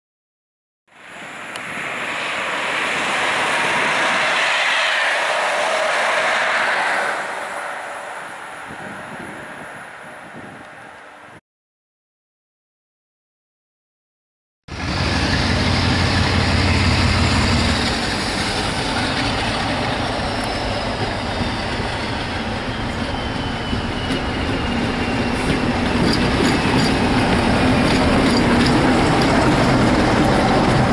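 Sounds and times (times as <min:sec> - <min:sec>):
diesel locomotive engine: 0:00.9 - 0:11.4, 0:14.7 - 0:30.9.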